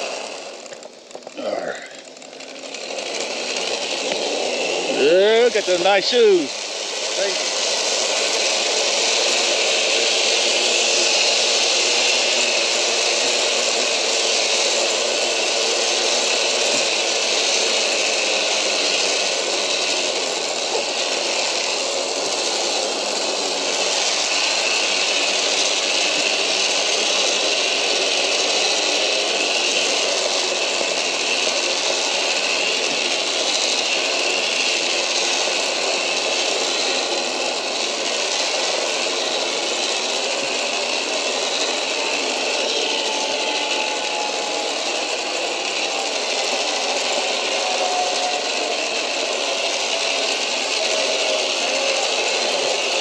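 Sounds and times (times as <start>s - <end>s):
zip-line pulleys whirring: 0.0s - 53.0s.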